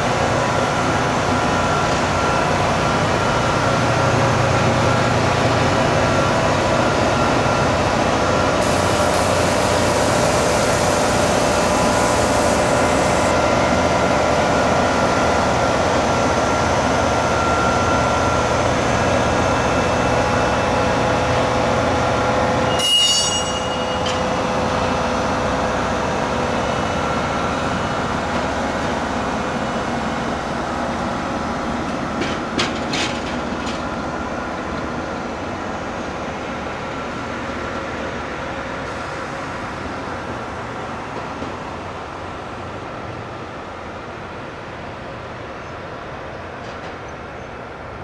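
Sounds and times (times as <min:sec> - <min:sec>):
train rolling with engines running: 0:00.0 - 0:48.0
sharp metallic clank: 0:22.7 - 0:24.4.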